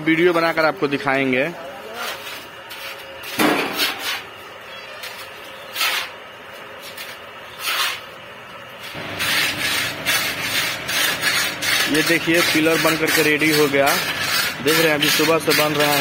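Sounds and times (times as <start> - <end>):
trowel scraping wet cement: 1.9 - 4.3, 5.0 - 8.1, 8.8 - 16.0.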